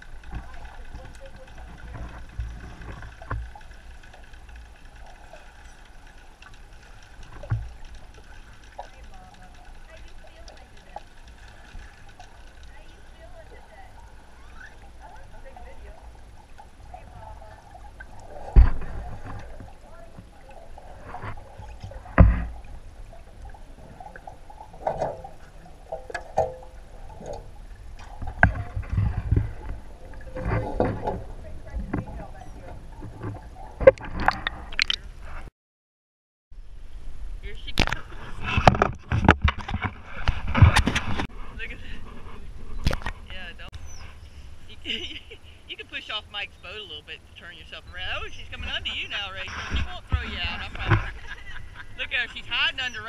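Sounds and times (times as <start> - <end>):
underwater rumble: 0.0 - 35.5, 36.6 - 53.0
dull underwater knocks: 6.4 - 35.0, 37.8 - 41.3.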